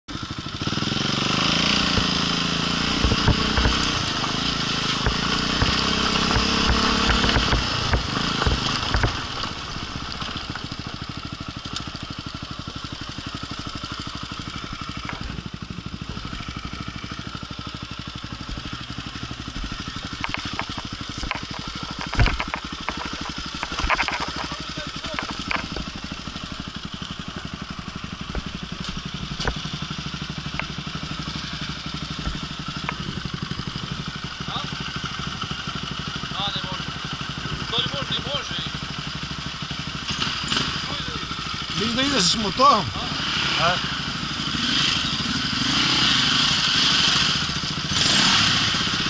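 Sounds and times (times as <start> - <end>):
dirt bike engine running: 0.1 - 49.0
sharp knocks: 1.8 - 11.0, 19.5 - 26.1.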